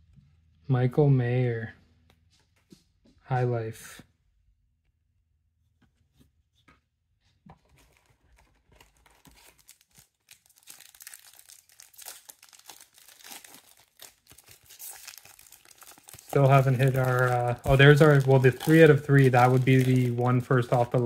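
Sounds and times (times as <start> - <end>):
foil wrapper crinkling and tearing: 7.9 - 21.0.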